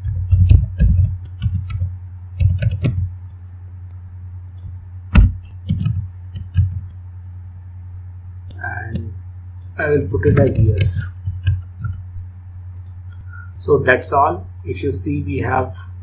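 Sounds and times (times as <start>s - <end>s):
computer keyboard typing: 0.0s - 3.1s, 4.5s - 7.0s, 8.5s - 12.0s
steady low hum: 0.0s - 16.0s.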